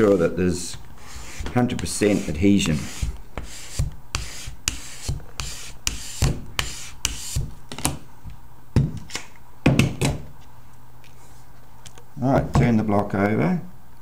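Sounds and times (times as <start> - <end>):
tool scraping on paper: 1.0 - 7.5.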